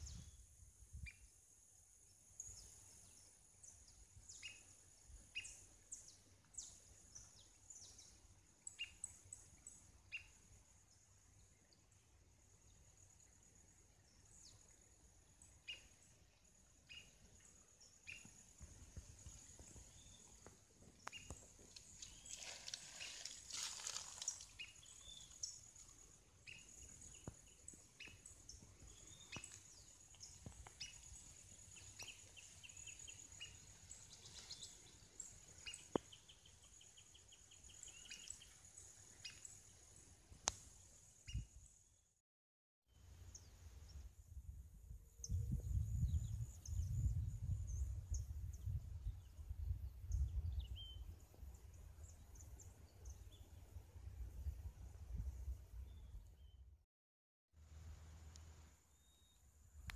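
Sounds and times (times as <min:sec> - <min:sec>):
wind on microphone: 0:00.0 - 0:01.2, 0:43.9 - 0:51.3
small birds chirping: 0:12.8 - 0:41.8.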